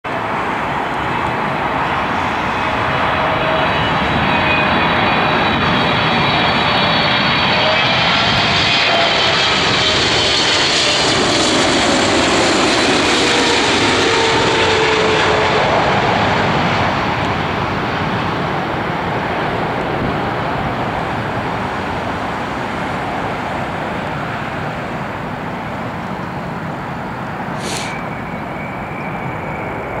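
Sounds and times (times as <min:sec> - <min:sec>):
jet engines whining and rumbling: 0:00.1 - 0:30.0
short hiss: 0:27.6 - 0:28.0.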